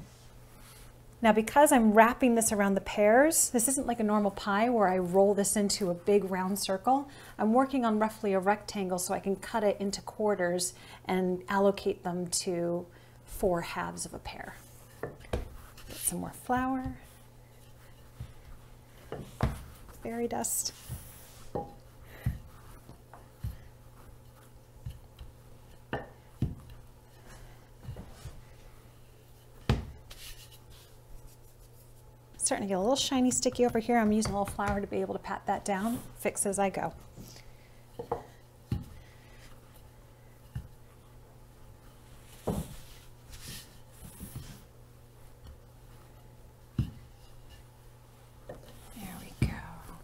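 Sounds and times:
low steady hum: 0:00.0 - 0:50.0
rolling pin rubbing dough: 0:13.3 - 0:50.0.

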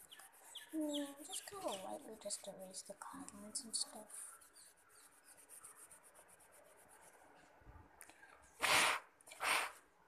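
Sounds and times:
pencil eraser rubbing on paper: 0:00.0 - 0:07.4
puffs of breath: 0:08.1 - 0:09.8.

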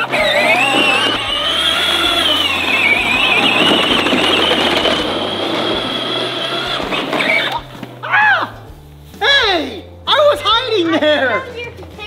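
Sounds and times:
toy tractor motor whining: 0:00.0 - 0:07.8
wheels splashing in mud: 0:00.0 - 0:07.8.

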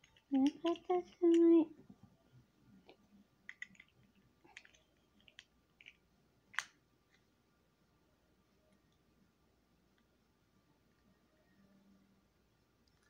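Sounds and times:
plastic toy pieces clicking: 0:00.0 - 0:01.5, 0:03.5 - 0:06.0.

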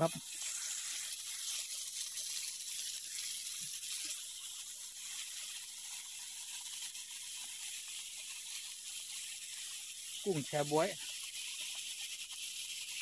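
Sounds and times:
seafood sizzling in butter: 0:00.0 - 0:13.0.

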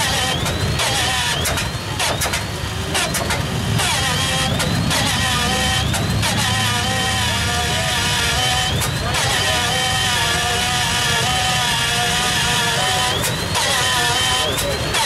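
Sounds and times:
engine pops: 0:00.0 - 0:09.8
radial engine starting up: 0:00.0 - 0:15.0
rising engine whine: 0:00.0 - 0:15.0.

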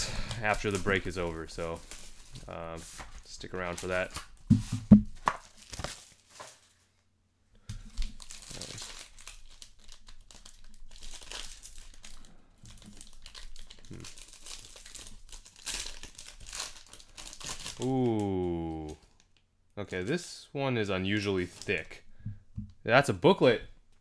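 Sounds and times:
foil wrapper crinkling: 0:00.2 - 0:04.4, 0:05.2 - 0:06.8, 0:07.9 - 0:19.4, 0:21.2 - 0:21.9
foil pack ripping: 0:05.2 - 0:06.7, 0:08.0 - 0:19.0.

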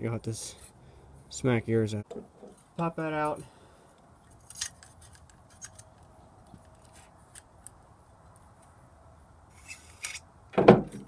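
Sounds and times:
metal parts clicking and clinking: 0:04.3 - 0:06.0.

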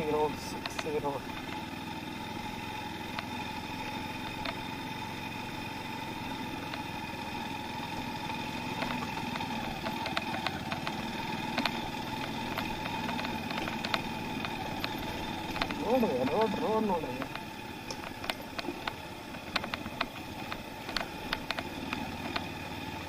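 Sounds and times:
motorcycle engine running: 0:00.0 - 0:23.0
light ticks: 0:00.6 - 0:01.6, 0:03.1 - 0:03.4, 0:04.2 - 0:04.6, 0:06.6 - 0:07.0, 0:08.7 - 0:22.6.

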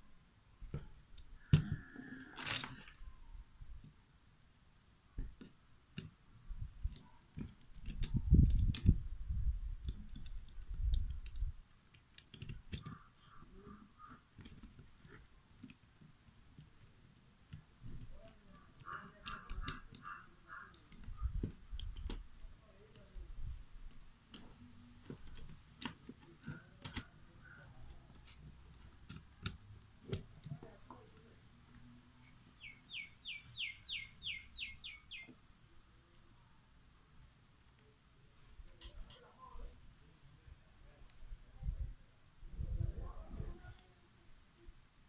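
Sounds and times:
plastic and metal parts clicking: 0:06.8 - 0:09.1, 0:09.7 - 0:31.9.

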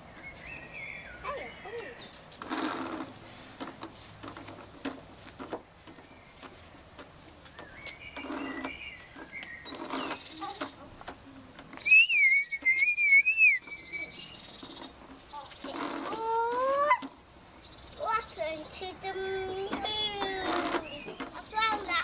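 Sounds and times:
high wavering whistle: 0:11.9 - 0:14.1.

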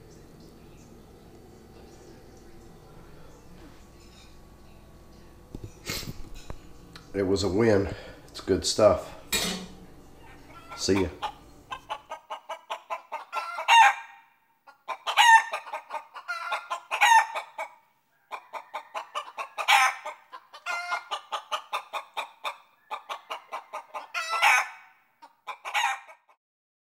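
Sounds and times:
hen clucking and squawking: 0:10.2 - 0:26.4.

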